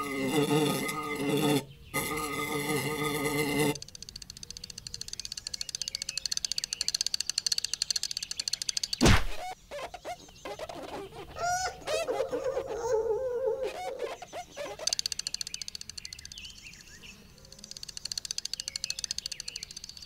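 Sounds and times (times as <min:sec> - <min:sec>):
rapid cartoon ticking: 0:02.6 - 0:09.0, 0:14.4 - 0:16.4, 0:17.6 - 0:20.0
loud thump: 0:09.0 - 0:09.5
short squeaky chirps: 0:09.0 - 0:13.0, 0:13.6 - 0:15.9.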